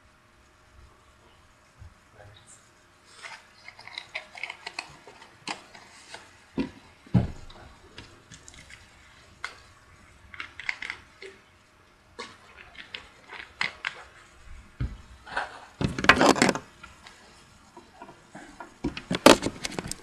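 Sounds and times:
clicks and rustles of handling: 0:03.1 - 0:06.8, 0:12.2 - 0:14.4, 0:15.3 - 0:20.0.

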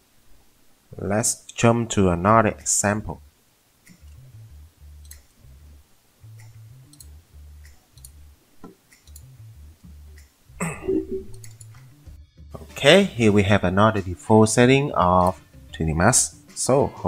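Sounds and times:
computer mouse clicking: 0:08.9 - 0:09.3
short voice sound: 0:10.6 - 0:11.4
low hum: 0:10.6 - 0:11.6.

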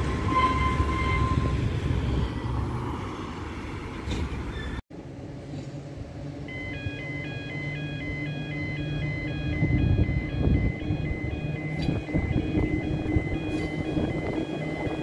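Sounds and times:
two-tone level crossing alarm: 0:06.5 - 0:15.0.

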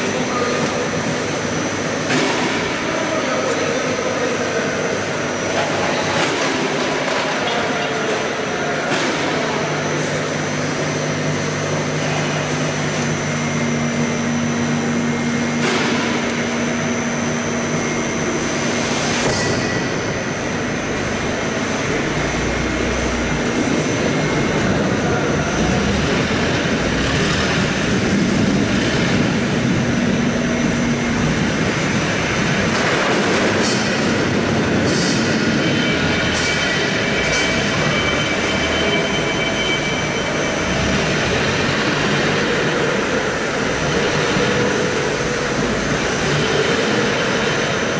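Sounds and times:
machine humming: 0:00.0 - 0:47.9
machinery running: 0:00.0 - 0:47.9
metallic clacks and squeals: 0:34.8 - 0:41.3.

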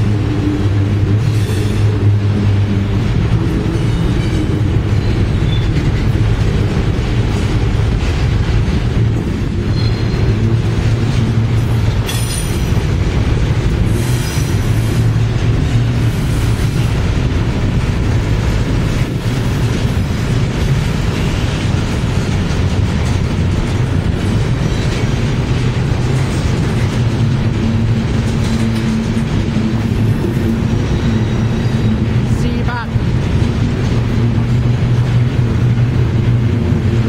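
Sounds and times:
train wheels rumbling on rail: 0:00.0 - 0:37.0
high wheel squeals: 0:03.8 - 0:05.9, 0:09.6 - 0:10.4, 0:30.7 - 0:32.1.

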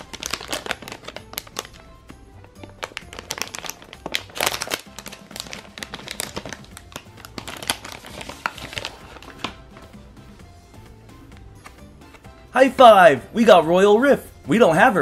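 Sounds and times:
plastic packet crinkling: 0:00.0 - 0:09.6
light background music: 0:00.0 - 0:15.0.

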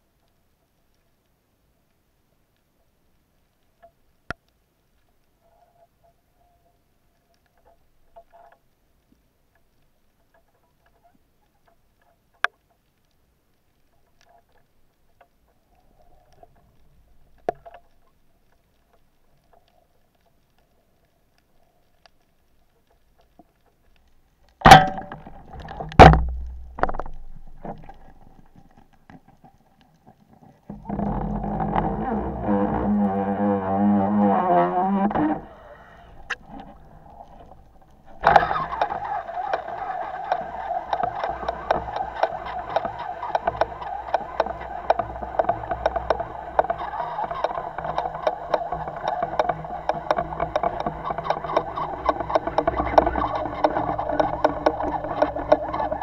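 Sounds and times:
faint clicks: 0:00.0 - 0:56.0
rumbling scraping movement: 0:24.6 - 0:56.0.

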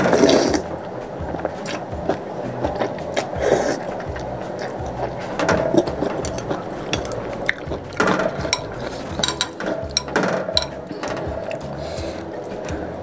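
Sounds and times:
slurping soup from a spoon: 0:00.0 - 0:00.7, 0:01.3 - 0:10.1
chewing: 0:00.0 - 0:13.0
metal spoon knocking ceramic bowl: 0:05.6 - 0:11.5.

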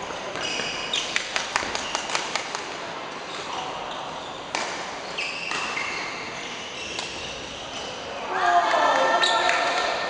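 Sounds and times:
court shoes squeaking: 0:00.0 - 0:02.4, 0:03.2 - 0:08.2, 0:09.2 - 0:09.8.

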